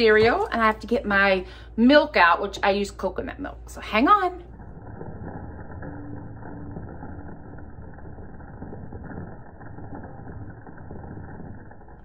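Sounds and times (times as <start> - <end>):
cereal pouring into bowl: 4.5 - 12.0.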